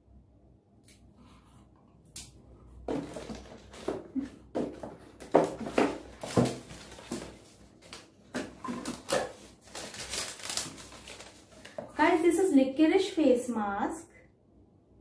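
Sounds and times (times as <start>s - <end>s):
packaging rustling: 2.9s - 12.0s.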